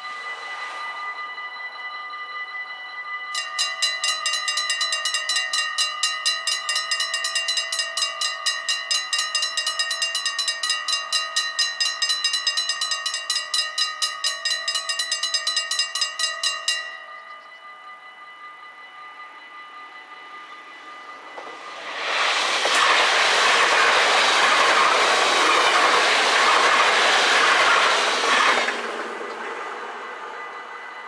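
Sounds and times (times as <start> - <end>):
level crossing bell ringing: 1.5 - 19.4.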